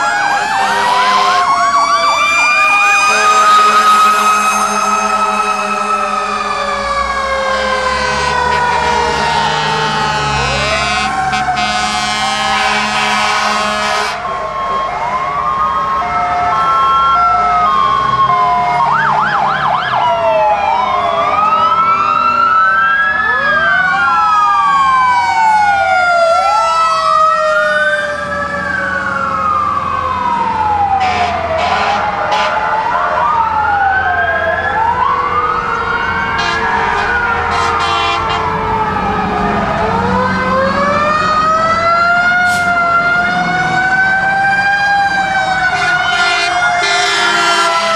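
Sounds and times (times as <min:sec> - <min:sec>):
fire truck engines rumbling: 0:00.0 - 0:47.9
fire truck sirens wailing: 0:00.0 - 0:47.9.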